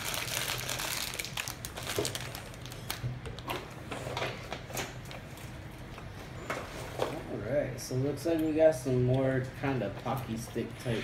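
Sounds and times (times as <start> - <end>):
wrappers and box crinkling: 0.0 - 3.5.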